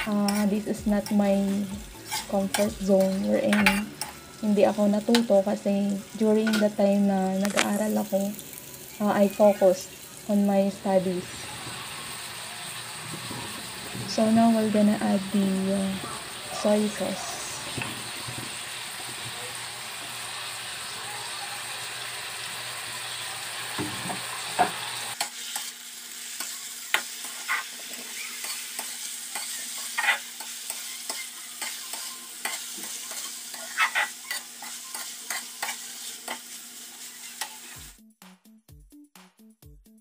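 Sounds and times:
metal spatula scraping pan: 0.0 - 4.3, 27.2 - 37.7
tofu sizzling in a wok: 0.0 - 38.0.

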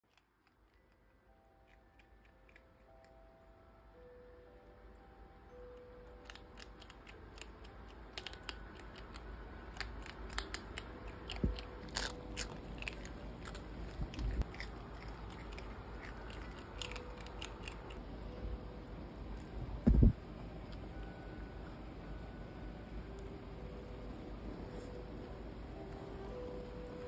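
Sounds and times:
animals chewing crunchy food: 6.3 - 18.0.

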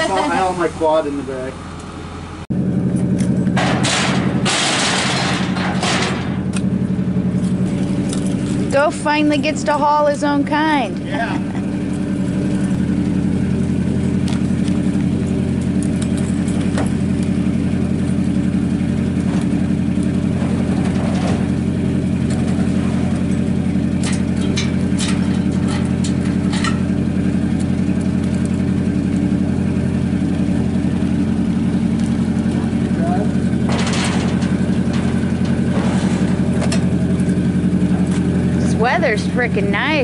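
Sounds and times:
truck engine idling: 0.0 - 40.0.

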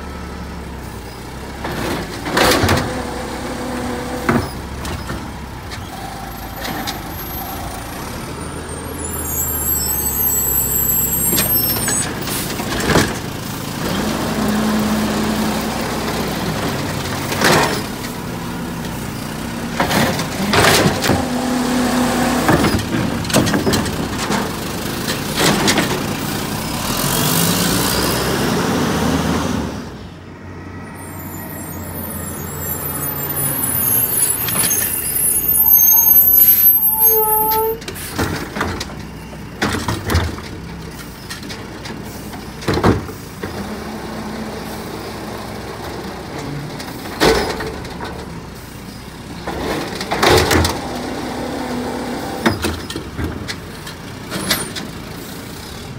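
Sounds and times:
garbage truck engine: 0.0 - 55.9.

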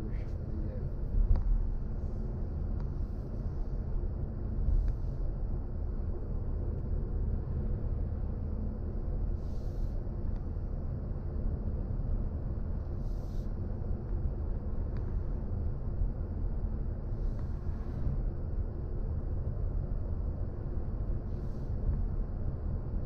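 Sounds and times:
road and tyre rumble: 0.0 - 23.0.

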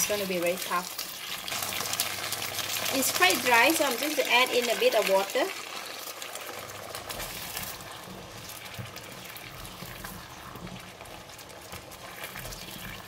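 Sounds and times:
sauce bubbling in a wok: 0.0 - 13.0
spatula stirring: 6.4 - 13.0.

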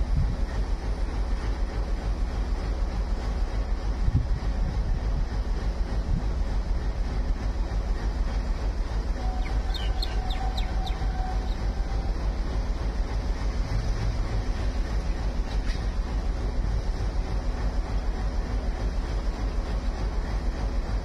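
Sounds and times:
diesel locomotive engine rumble: 0.0 - 21.0
bird chirping: 9.2 - 11.7.

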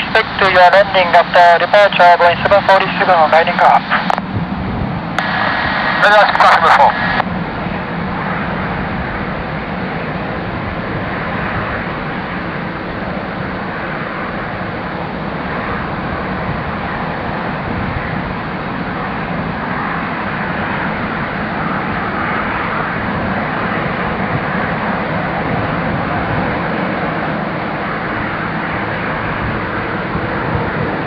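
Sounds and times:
jet engines roar and whine: 0.0 - 31.0.

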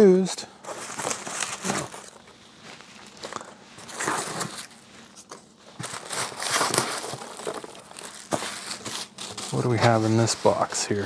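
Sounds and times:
packing peanuts rustling: 0.6 - 11.0.

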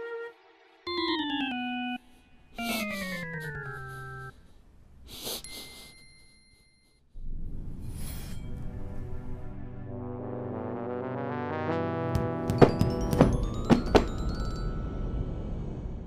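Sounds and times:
orchestral film music: 0.0 - 2.0, 9.2 - 16.0.

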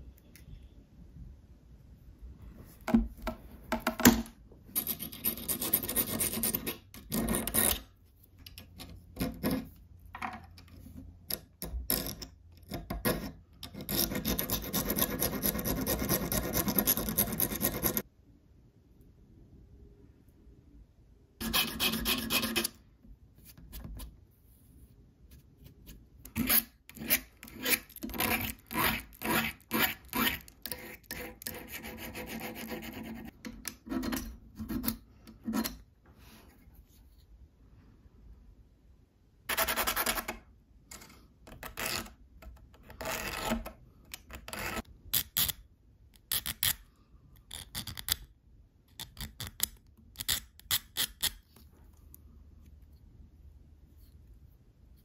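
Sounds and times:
hand file scraping steel: 21.4 - 22.8, 26.3 - 35.8.

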